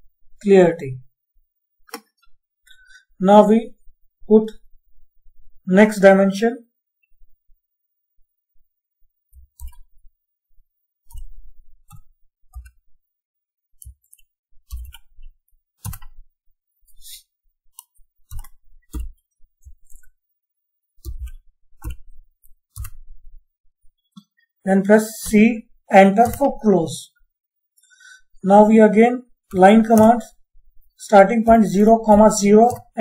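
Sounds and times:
keyboard typing clicks: 9.4s - 9.9s, 11.0s - 12.8s, 13.8s - 16.2s, 17.7s - 20.1s, 21.0s - 23.1s, 26.2s - 26.6s, 29.5s - 30.3s, 31.4s - 33.0s.

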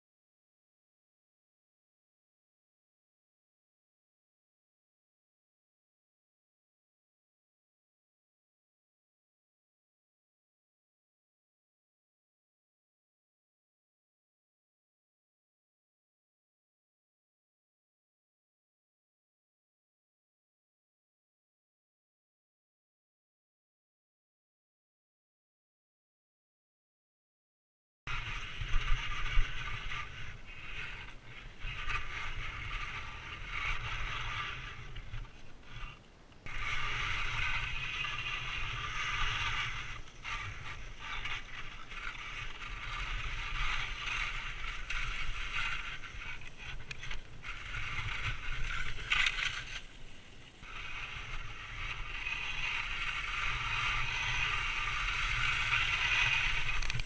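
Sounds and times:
low wind rumble: 28.1s - 57.0s
skis scraping over snow: 28.1s - 57.0s.

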